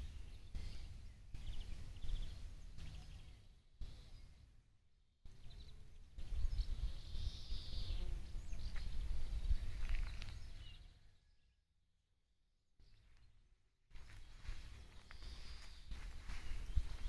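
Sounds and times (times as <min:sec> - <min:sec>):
faint bird chirps: 0:00.0 - 0:04.6, 0:05.3 - 0:11.6, 0:14.0 - 0:17.0
wind buffeting microphone: 0:05.4 - 0:10.8, 0:14.4 - 0:17.0.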